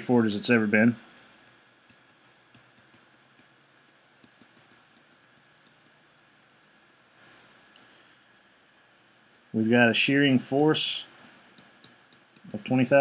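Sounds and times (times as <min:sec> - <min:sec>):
stylus tapping on pen tablet: 0:01.4 - 0:07.0, 0:11.5 - 0:12.7.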